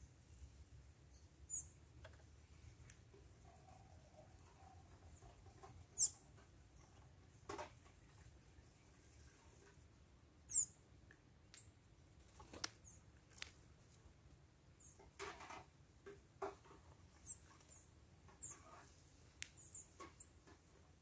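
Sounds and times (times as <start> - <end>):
small birds chirping: 1.0 - 9.4, 10.4 - 10.8, 11.5 - 14.1, 14.7 - 15.2, 16.4 - 20.7.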